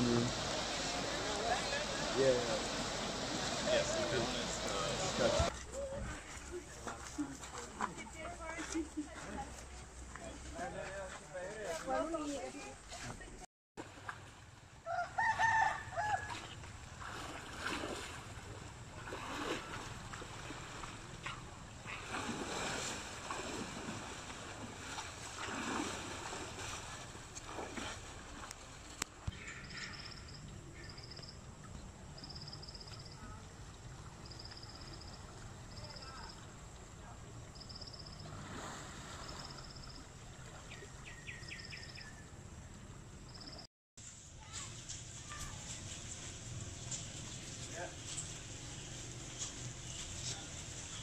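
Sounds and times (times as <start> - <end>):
hiss of moving water: 0.0 - 5.5, 16.9 - 29.0, 38.1 - 40.0
water splashing and sloshing: 0.0 - 51.0
rooster crowing: 14.8 - 16.5.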